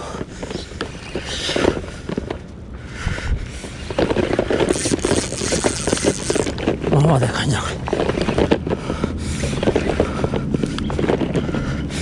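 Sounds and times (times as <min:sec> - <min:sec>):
wind noise: 0:00.5 - 0:12.0
fishing reel cranking: 0:03.8 - 0:06.7.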